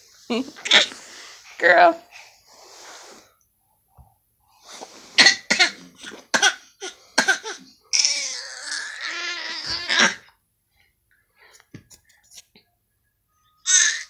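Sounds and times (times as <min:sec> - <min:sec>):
infant coughing: 0:05.2 - 0:07.7
infant fussy cry: 0:06.4 - 0:10.3, 0:13.6 - 0:14.0.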